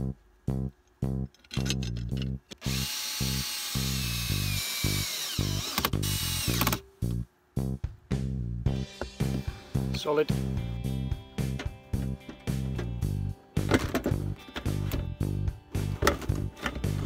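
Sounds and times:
cordless drill motor whine: 0:02.6 - 0:06.8
plucked guitar background music: 0:08.6 - 0:17.0.

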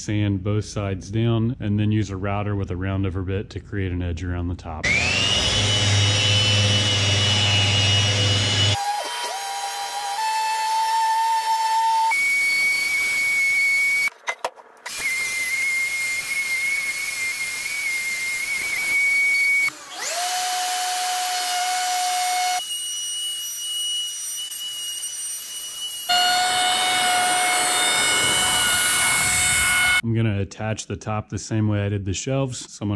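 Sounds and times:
orbital sander whining: 0:04.8 - 0:14.1, 0:14.9 - 0:30.0
router cutting wood: 0:04.8 - 0:14.1, 0:14.8 - 0:30.0.

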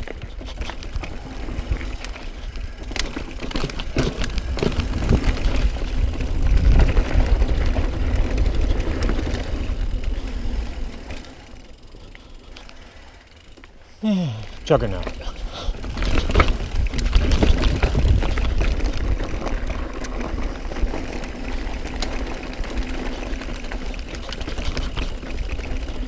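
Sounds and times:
bike rattling over rocks: 0:00.0 - 0:13.7, 0:14.4 - 0:26.0
wind rumble on microphone: 0:04.1 - 0:10.3, 0:15.9 - 0:20.4.

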